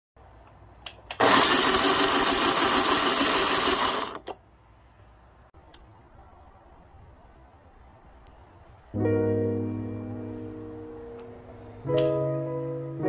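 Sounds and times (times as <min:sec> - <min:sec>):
grinder clicks: 0:00.8 - 0:04.4
grinder motor whining: 0:01.2 - 0:04.4.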